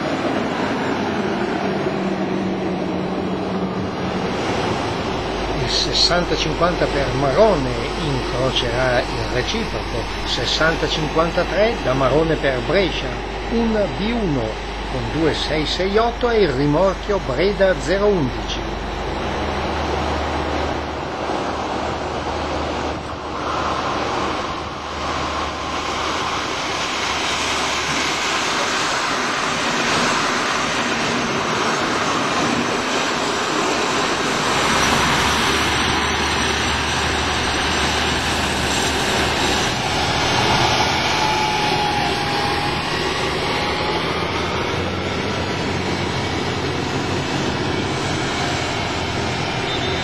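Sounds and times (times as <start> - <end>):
diesel railcar engine drone: 0.0 - 50.0
short high squeal: 49.6 - 50.0.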